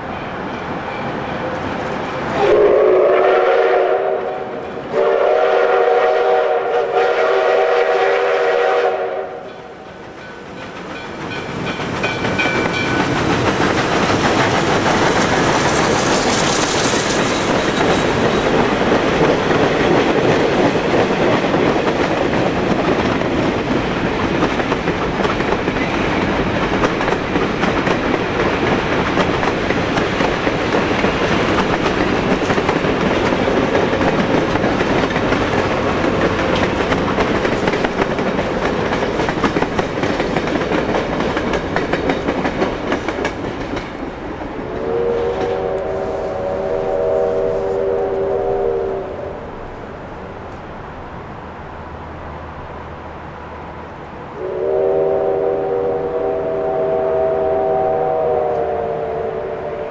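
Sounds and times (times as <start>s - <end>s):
steam locomotive chime whistle: 0.2s - 13.2s, 44.6s - 49.6s, 54.4s - 59.9s
rush of steam: 1.9s - 50.2s
train cars clattering over rails: 9.9s - 44.5s.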